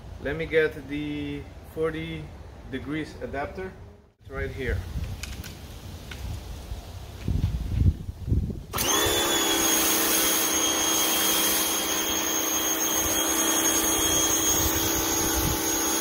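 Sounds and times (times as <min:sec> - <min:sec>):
pressure washer motor running: 0:08.8 - 0:16.0
water jet spraying on concrete: 0:09.0 - 0:16.0.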